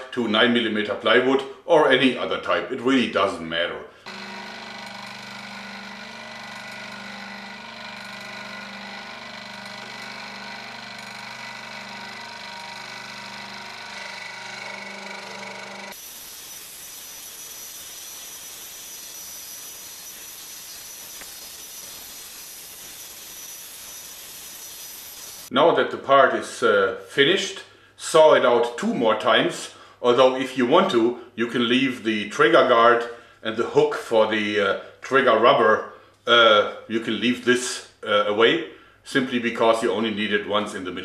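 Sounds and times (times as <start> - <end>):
scroll saw cutting wood: 4.0 - 25.5.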